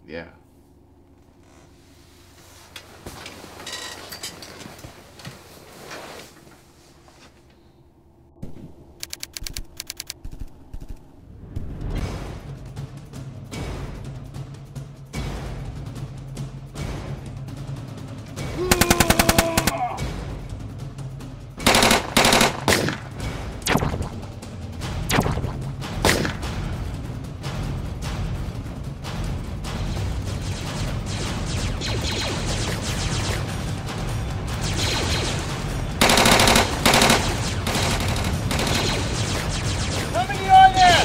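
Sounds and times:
film score music: 6.6s - 41.0s
automatic gunfire: 18.6s - 19.8s, 21.6s - 23.1s, 34.6s - 41.0s.

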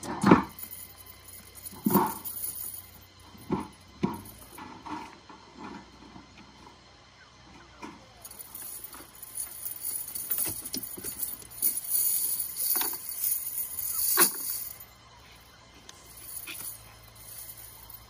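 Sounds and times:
lead sinkers clinking: 0.0s - 4.8s, 7.7s - 15.0s, 15.9s - 18.0s.

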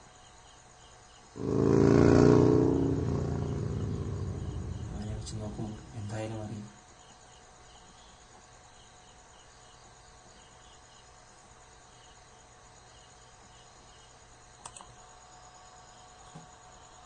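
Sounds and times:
background hiss and hum: 0.0s - 17.0s
faint insect chirping: 0.0s - 17.0s
sharp clicks: 14.6s - 14.9s.

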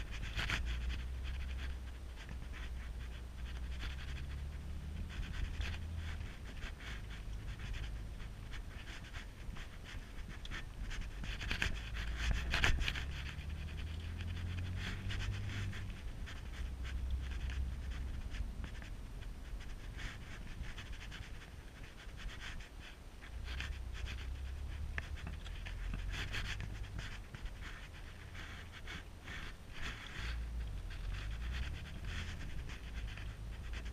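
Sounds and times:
rough breathy rustling noise: 0.0s - 33.9s.

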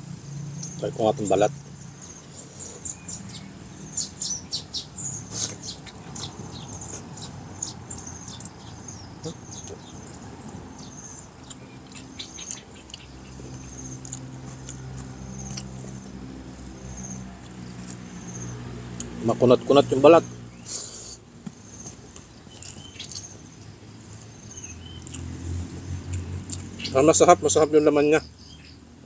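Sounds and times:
man chewing with wet smacks: 5.3s - 10.7s, 11.3s - 16.8s, 21.4s - 23.4s, 24.9s - 25.4s, 26.0s - 26.7s.

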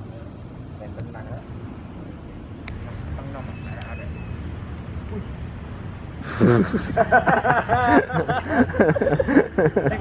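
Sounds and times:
young men laughing and talking: 6.2s - 10.0s.

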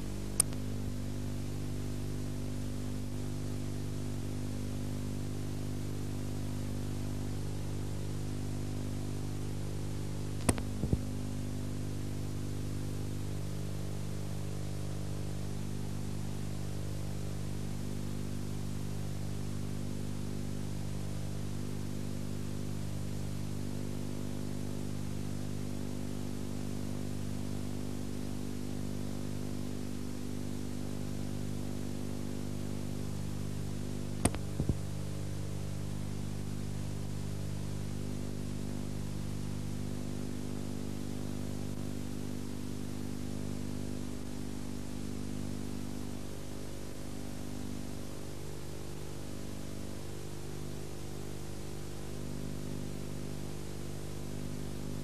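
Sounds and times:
electrical hum: 0.0s - 55.0s
tape hiss: 0.0s - 55.0s
short clicks: 0.4s - 0.6s, 10.4s - 11.0s.

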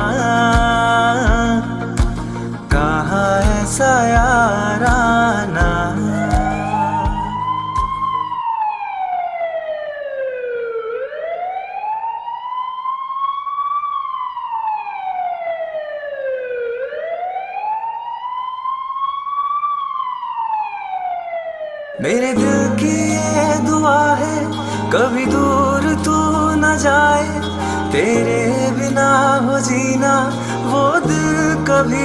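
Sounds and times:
background music: 0.0s - 8.4s, 22.0s - 32.0s
siren wailing: 5.9s - 32.0s.

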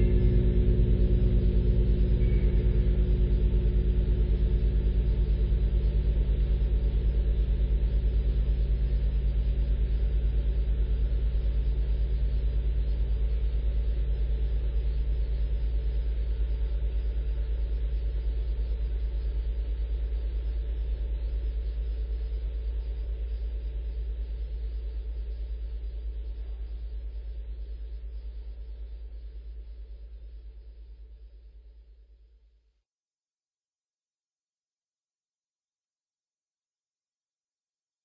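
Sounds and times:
deep hum of a giant bell: 0.0s - 19.0s.

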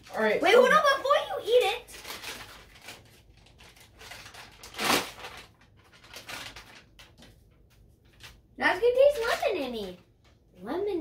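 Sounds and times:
plastic food pouch crinkling: 1.1s - 7.4s.

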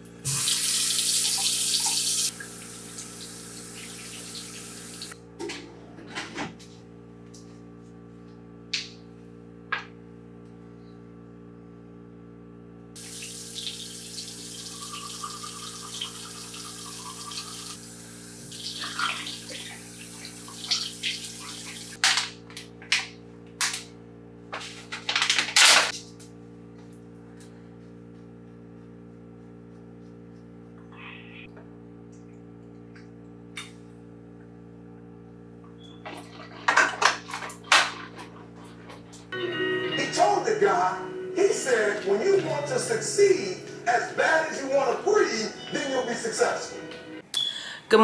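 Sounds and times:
faucet running into sink: 0.3s - 5.2s, 13.0s - 22.0s
water splashing: 18.5s - 22.0s.

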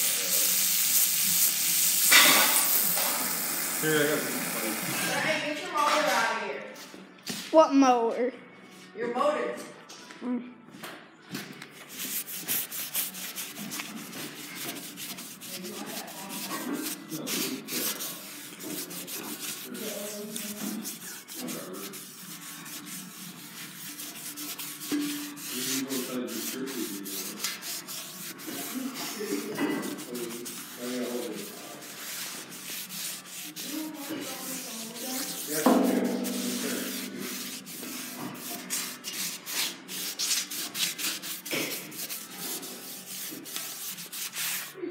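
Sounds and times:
towel scrubbing metal: 11.8s - 44.8s.

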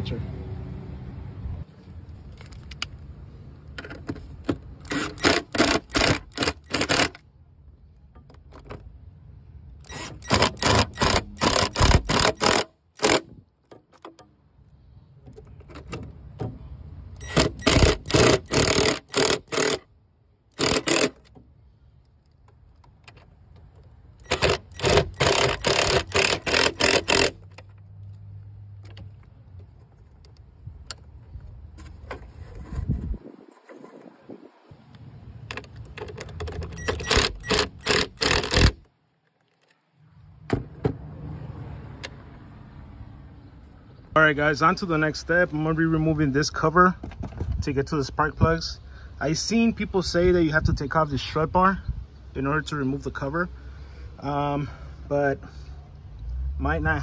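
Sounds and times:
power wrench rapid clicking: 4.8s - 7.2s, 9.9s - 13.3s, 17.2s - 19.9s, 20.5s - 21.3s, 24.2s - 27.5s, 36.4s - 38.9s.

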